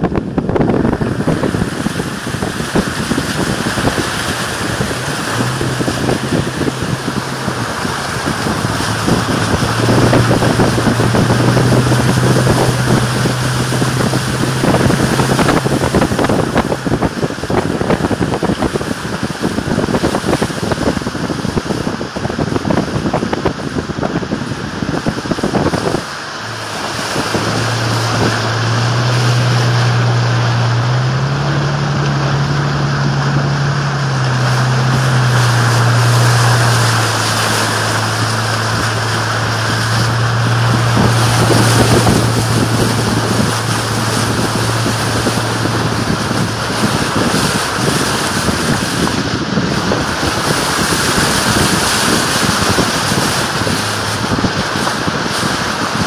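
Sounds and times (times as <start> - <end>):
truck engine hum: 0.0 - 56.0
water rushing and splashing: 0.0 - 56.0.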